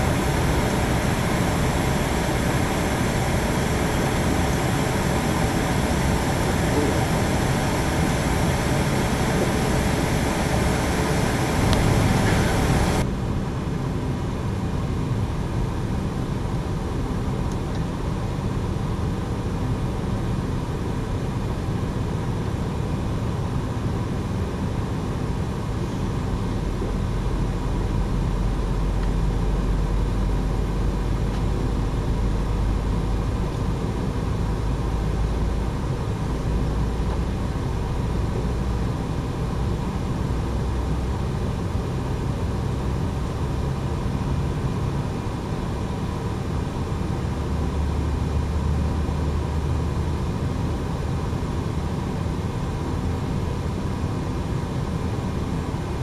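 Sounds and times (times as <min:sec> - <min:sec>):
deep rumble: 0:00.0 - 0:13.1
aircraft cabin hum and air rush: 0:00.0 - 0:56.0.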